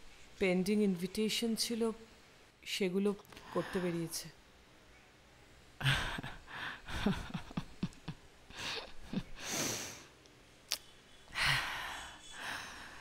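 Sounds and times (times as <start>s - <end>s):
woman chuckling breathily: 5.8s - 9.9s.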